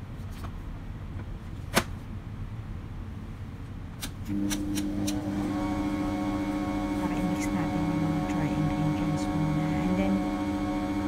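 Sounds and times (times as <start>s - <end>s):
stand mixer humming: 4.3s - 11.0s.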